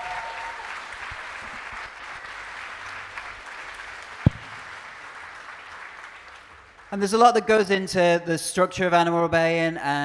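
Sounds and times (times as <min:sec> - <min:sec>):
audience applauding: 0:00.0 - 0:07.0
short low thump: 0:04.3 - 0:04.6.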